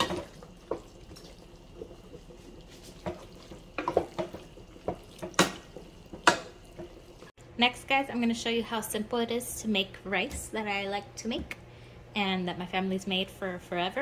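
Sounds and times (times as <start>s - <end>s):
spoon knocking against pot: 3.0s - 7.0s.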